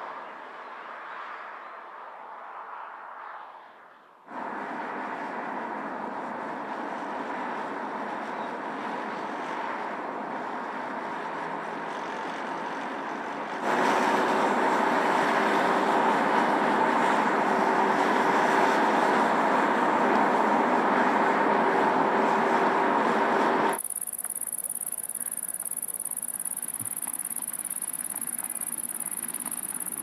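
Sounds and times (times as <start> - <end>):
faint steady tone: 23.7 - 30.0.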